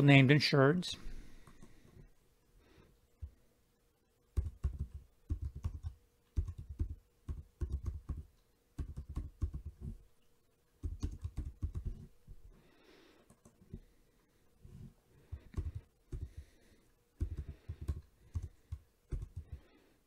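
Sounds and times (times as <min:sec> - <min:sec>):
typing on computer keyboard: 0:04.4 - 0:10.0, 0:10.8 - 0:12.1, 0:15.4 - 0:16.4, 0:17.2 - 0:19.6.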